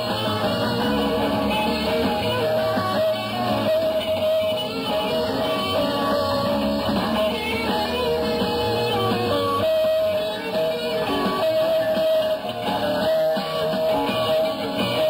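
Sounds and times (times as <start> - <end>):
live rock band playing: 0.0 - 15.0.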